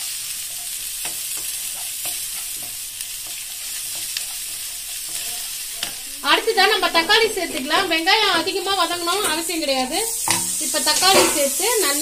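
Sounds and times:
onions sizzling in hot oil: 0.0s - 12.0s
wooden spatula scraping pan: 1.4s - 9.5s.

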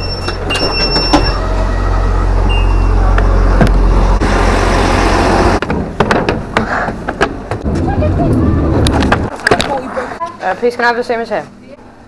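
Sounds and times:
door-warning beeps: 0.0s - 1.4s, 2.4s - 3.0s
train rumbling at platform: 0.0s - 9.4s.

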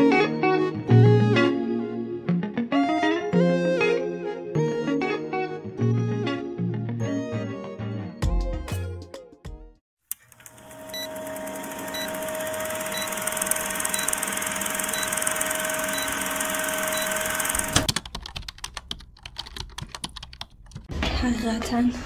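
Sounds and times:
film projector whir: 10.1s - 17.9s.

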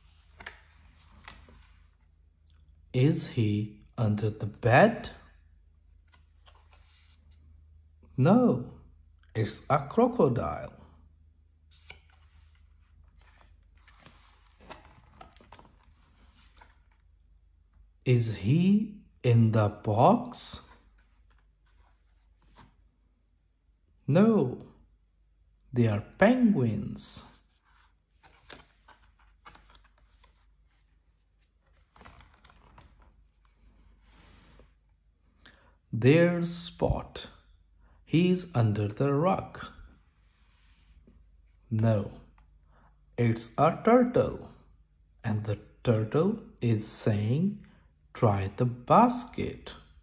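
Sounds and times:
book pages rustling: 0.0s - 2.3s, 5.8s - 7.6s, 11.6s - 17.4s, 20.6s - 23.0s, 27.4s - 35.0s
page turning clicks and taps: 0.3s - 1.4s, 11.7s - 12.3s.

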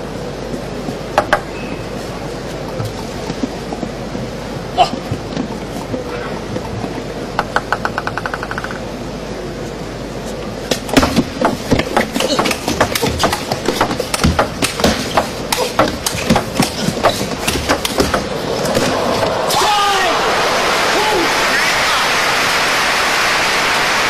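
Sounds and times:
table tennis ball clicking: 7.4s - 8.9s
crowd murmur: 18.2s - 23.5s.

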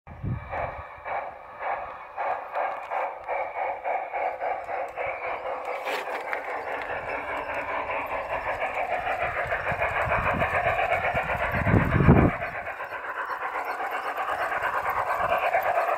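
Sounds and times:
low rumble of wheels: 0.1s - 15.9s
model steam locomotive chuffing: 0.1s - 15.9s.

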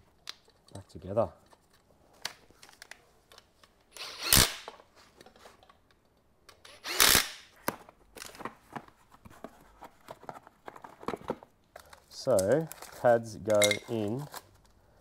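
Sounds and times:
cordless drill bursts: 4.0s - 4.7s, 6.7s - 7.4s.

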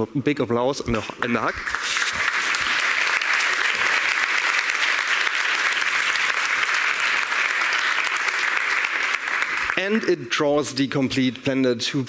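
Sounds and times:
large audience applauding: 1.5s - 10.3s.

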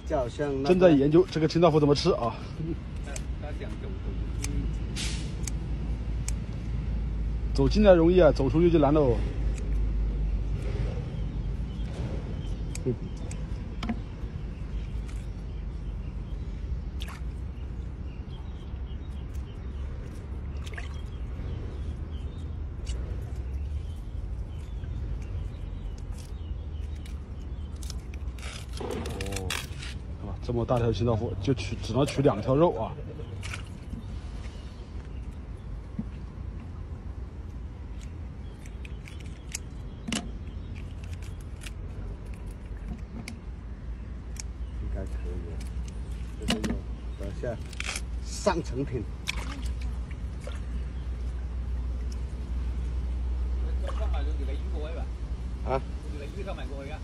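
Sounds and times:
water sloshing and dripping: 4.4s - 55.0s
sharp splashes: 16.8s - 17.8s, 19.3s - 21.9s, 33.2s - 34.6s, 49.0s - 51.2s
water splashing in metal basin: 20.3s - 21.4s, 49.2s - 50.8s.

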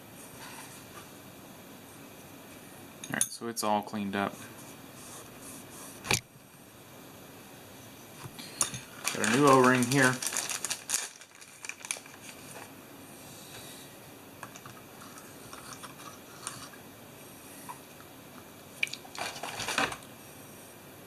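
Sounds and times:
rustling crackle: 8.8s - 12.8s, 18.9s - 20.0s.

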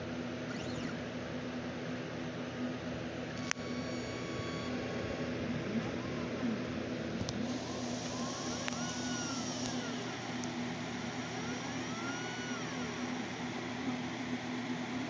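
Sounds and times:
stepper motor whine: 0.4s - 1.1s, 3.3s - 13.6s
steady hum: 2.5s - 15.0s.

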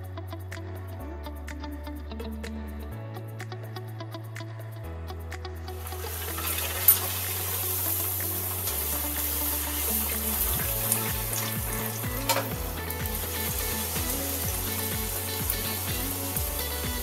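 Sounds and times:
bread sizzling in hot oil: 5.8s - 17.0s.

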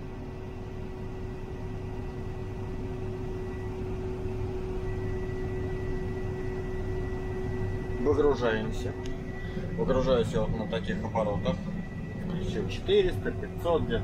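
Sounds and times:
combine harvester engine hum: 0.0s - 14.0s.

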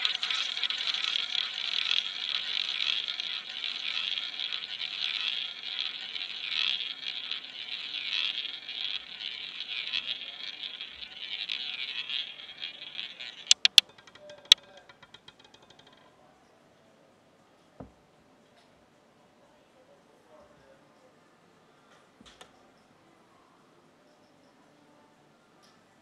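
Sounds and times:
roulette ball rolling: 0.0s - 16.2s.

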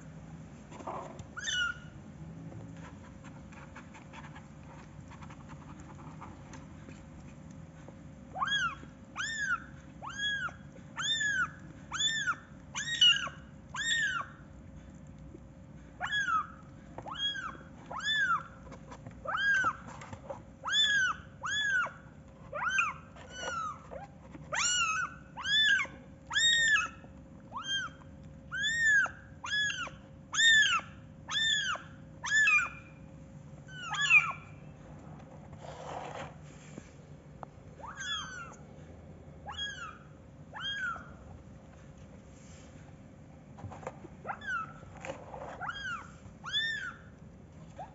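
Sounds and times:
kitten mewing: 33.7s - 34.5s.

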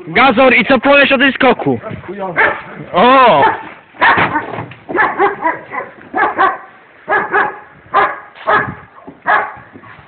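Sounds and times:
dog barking: 2.4s - 2.7s, 3.3s - 10.0s.

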